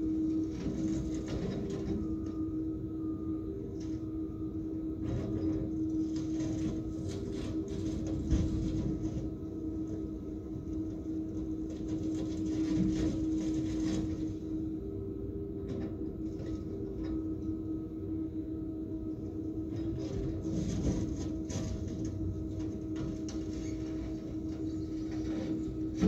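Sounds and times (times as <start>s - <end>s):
excavator engine droning: 0.0s - 26.0s.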